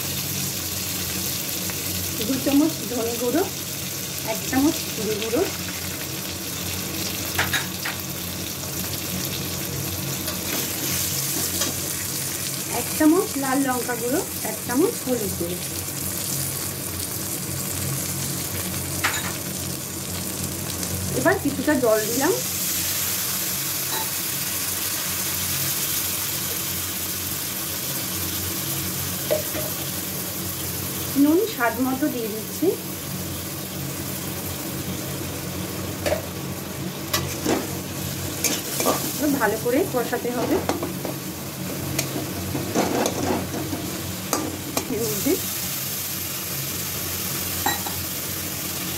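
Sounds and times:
food sizzling in hot oil: 0.0 - 48.9
metal spatula scraping a pan: 42.0 - 44.5.

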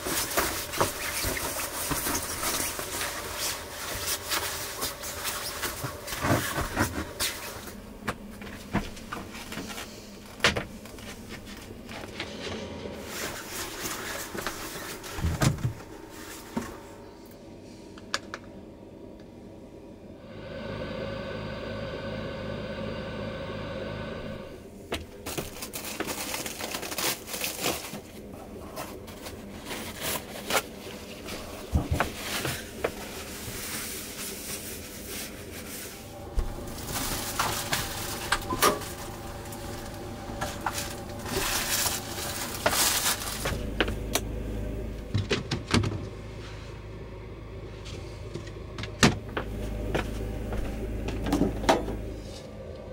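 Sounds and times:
steady noise: 7.0 - 24.9, 35.9 - 45.2.

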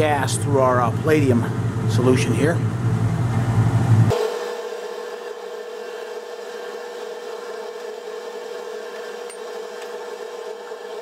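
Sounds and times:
exhaust fan whirring: 0.0 - 4.2.

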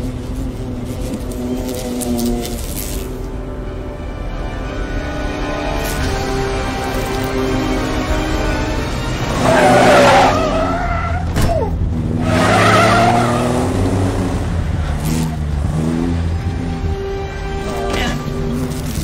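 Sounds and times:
dramatic film music: 0.0 - 19.0
car tyres squealing: 9.2 - 14.1.

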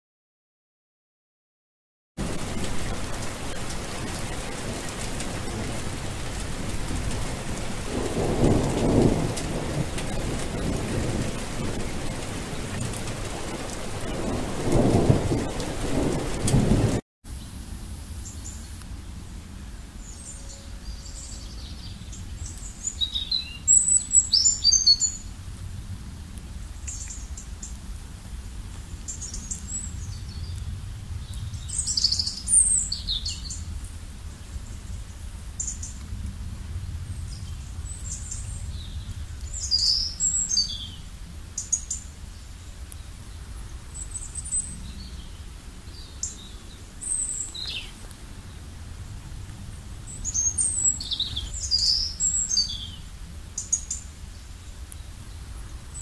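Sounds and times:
birds chirping: 2.2 - 17.0, 37.2 - 41.0, 41.6 - 48.8, 50.1 - 56.0
thunder rolling: 2.2 - 17.0
steady rain: 2.2 - 56.0
faint low rumble: 25.2 - 39.8.

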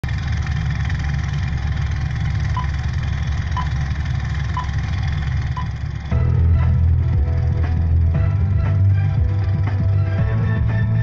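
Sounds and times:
film projector whirring and clattering: 0.1 - 8.1.

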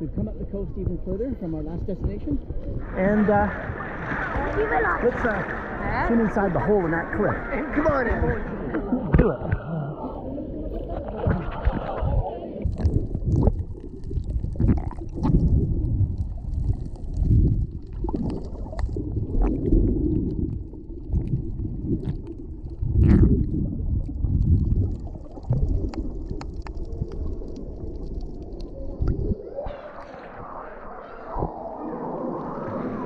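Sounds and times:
underwater water surges and bubbles: 0.0 - 33.0
water splashing: 1.7 - 33.0
underwater clicks: 10.8 - 30.4.

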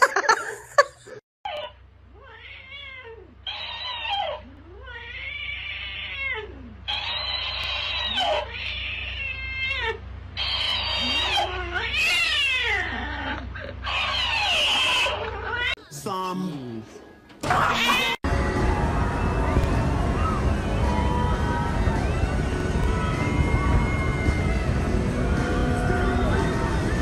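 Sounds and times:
cats yowling: 1.5 - 15.8, 17.4 - 18.3.

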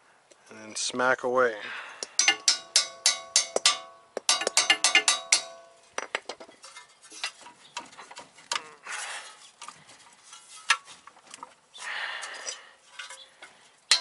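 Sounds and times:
hammer striking steel chisel: 2.0 - 6.2
metal clank: 2.0 - 8.6
metal clinks and knocks: 2.0 - 8.7, 12.3 - 14.0.

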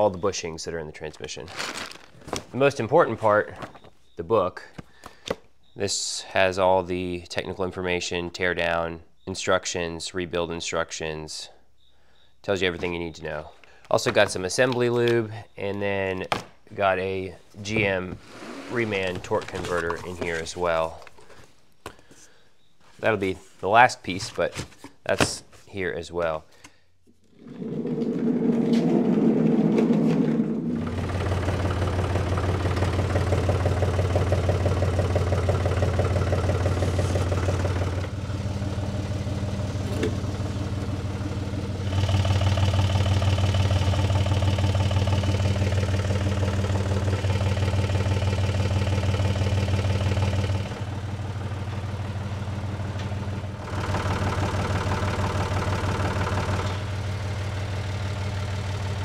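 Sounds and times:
tractor engine running: 17.6 - 21.1, 27.3 - 59.0.

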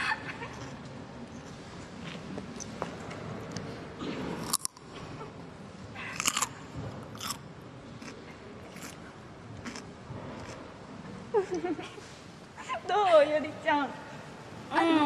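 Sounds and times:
cucumber crunching: 4.4 - 4.8, 6.2 - 7.4, 8.0 - 9.0, 9.6 - 10.6
soft chewing: 6.0 - 7.4, 8.0 - 10.7.

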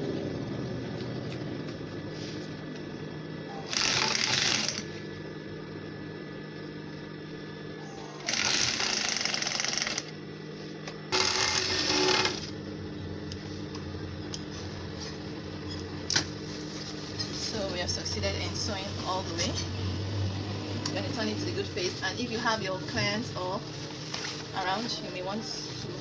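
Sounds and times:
motor hum: 0.0 - 22.3
sewing machine stitching: 3.6 - 4.8, 8.2 - 10.1, 11.1 - 12.5.

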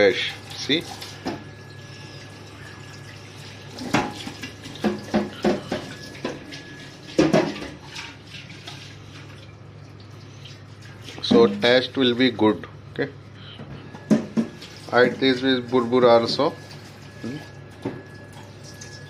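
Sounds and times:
steady low hum: 8.3 - 16.0.

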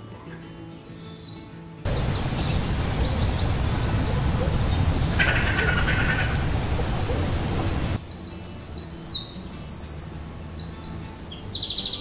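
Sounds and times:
songbird singing: 0.3 - 12.0
rush of noise: 1.9 - 8.0.

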